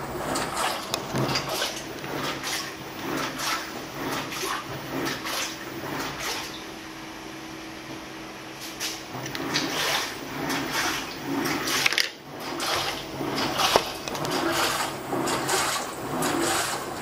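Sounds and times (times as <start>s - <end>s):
motor hum: 0.0s - 17.0s
water sloshing in washing machine: 0.0s - 17.0s.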